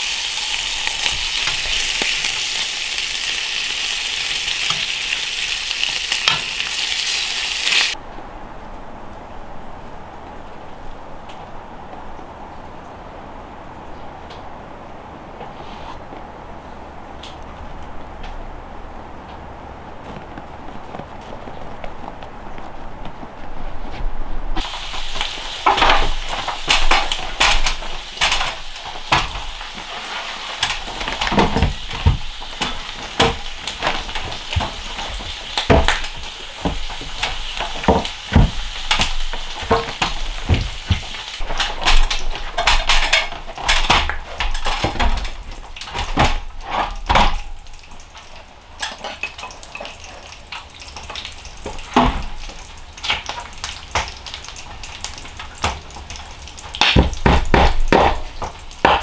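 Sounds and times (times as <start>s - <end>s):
wooden boards knocking and clattering: 30.6s - 47.7s, 51.6s - 54.2s, 56.7s - 59.0s.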